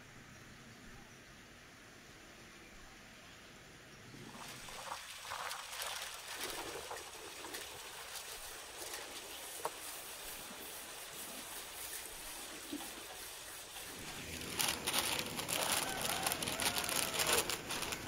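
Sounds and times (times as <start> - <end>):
baking paper rustling: 4.6 - 18.0.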